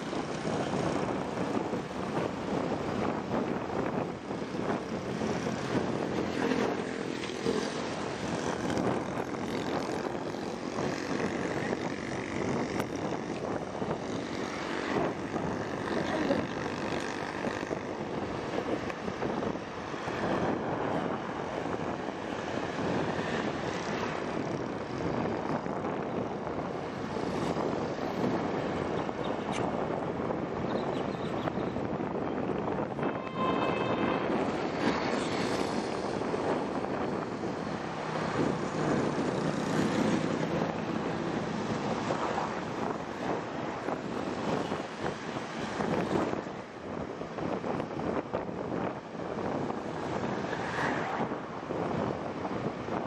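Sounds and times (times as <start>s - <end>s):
wind rushing: 31.8s - 53.0s.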